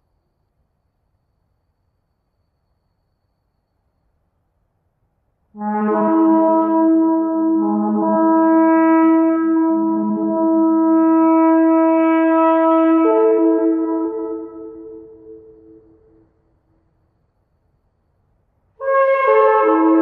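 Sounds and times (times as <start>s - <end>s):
shofar blast: 5.6s - 16.0s, 18.8s - 20.0s.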